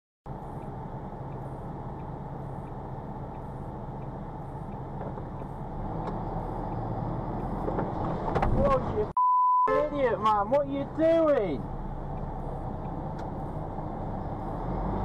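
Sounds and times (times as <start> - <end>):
lorry diesel engine running: 10.1 - 15.0.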